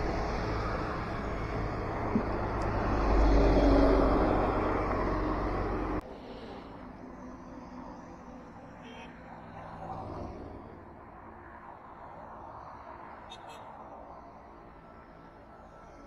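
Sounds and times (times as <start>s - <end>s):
truck passing by: 0.0s - 16.0s.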